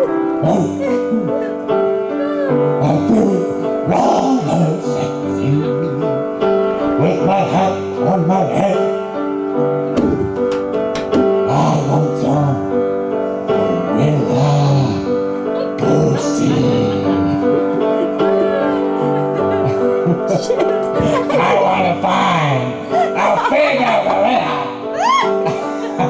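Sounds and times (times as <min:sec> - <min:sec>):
man singing into a microphone: 0:00.0 - 0:01.6, 0:02.6 - 0:06.2, 0:06.8 - 0:09.2, 0:11.4 - 0:17.7, 0:20.9 - 0:25.0
held keyboard chords: 0:00.0 - 0:26.0.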